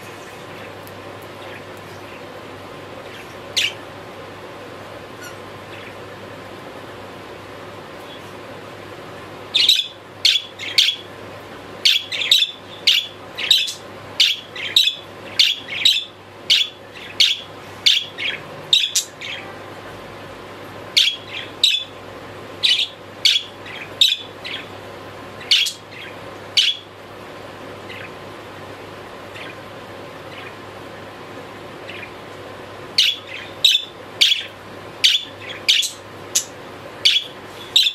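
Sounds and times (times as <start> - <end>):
budgerigar chirping: 9.6 - 11.1, 11.8 - 19.5, 21.0 - 21.9, 22.6 - 24.7, 25.4 - 26.9, 33.0 - 37.9.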